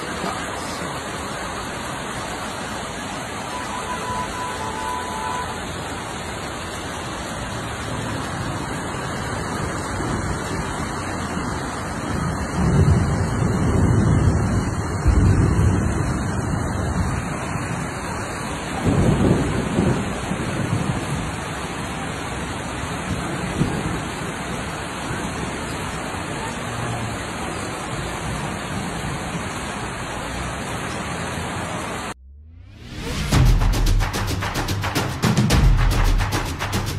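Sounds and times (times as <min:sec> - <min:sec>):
running water: 0:00.0 - 0:12.9
heavy rain pouring: 0:00.0 - 0:32.2, 0:32.8 - 0:36.9
low rumbles: 0:32.1 - 0:34.6.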